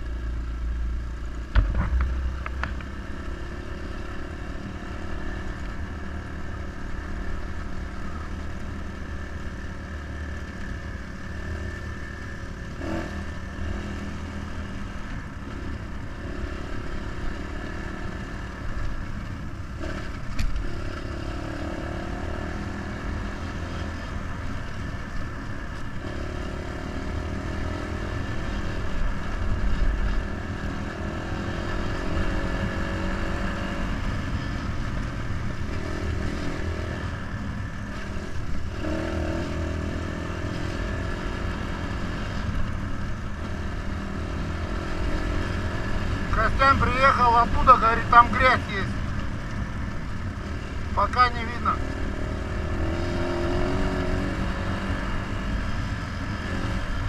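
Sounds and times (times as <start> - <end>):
heavy low rumble: 0.6 - 3.5
dirt bike engine running: 1.1 - 31.1.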